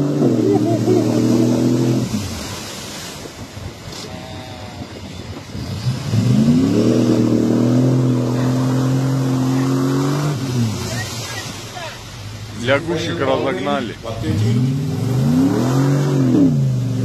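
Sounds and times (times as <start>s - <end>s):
suv engine revving: 0.0s - 2.7s, 5.5s - 11.6s, 12.2s - 17.0s.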